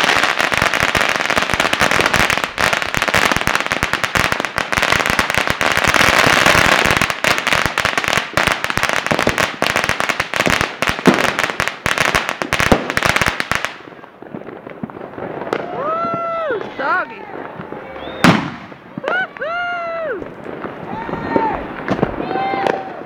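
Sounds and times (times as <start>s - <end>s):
firecrackers popping: 0.0s - 23.0s.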